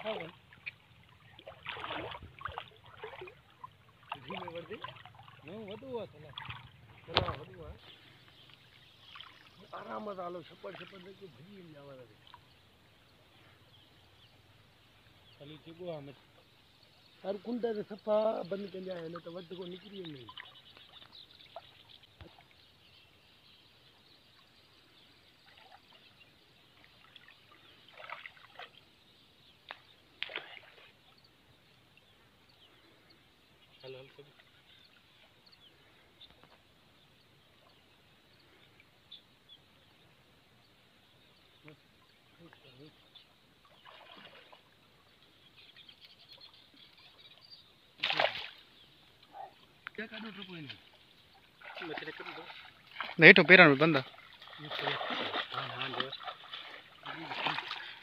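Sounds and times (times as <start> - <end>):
sharp splashes: 0.0 - 11.5, 19.2 - 22.6, 26.8 - 28.9, 29.6 - 31.2, 43.6 - 45.1, 48.0 - 48.9, 49.9 - 58.0
water splashing and sloshing: 0.0 - 23.2, 23.8 - 38.9, 40.9 - 58.0
loud water splash: 1.4 - 3.4, 48.0 - 48.6, 51.6 - 57.9
faint bird chirps: 2.3 - 58.0.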